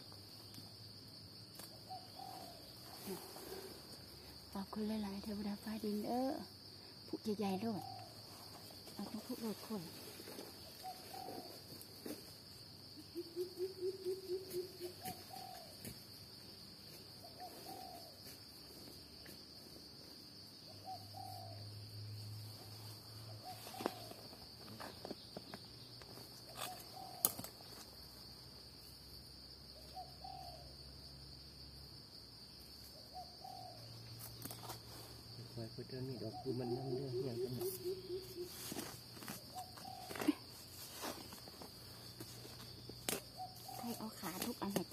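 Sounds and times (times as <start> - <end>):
insects droning: 0.0 - 44.9
bird calling: 10.6 - 11.6, 13.0 - 15.7, 26.6 - 27.5, 36.2 - 44.9.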